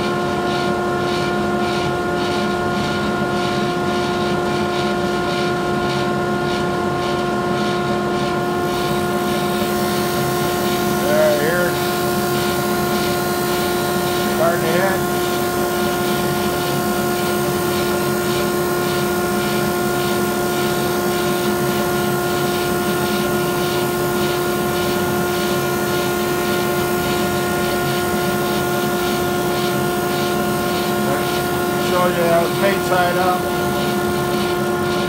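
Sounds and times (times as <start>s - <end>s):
drum sander running: 0.0s - 35.0s
steady machine whine: 0.0s - 35.0s.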